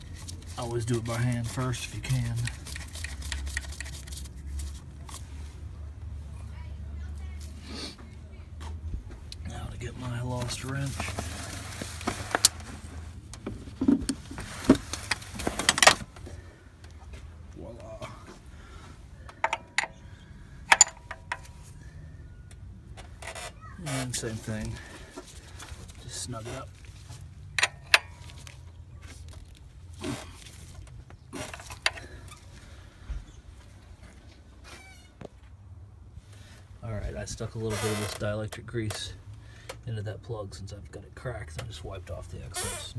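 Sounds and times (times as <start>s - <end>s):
soft rustle: 10.0s - 15.6s, 24.1s - 27.4s
metal wrench clinks and knocks: 19.4s - 20.0s, 20.7s - 21.5s.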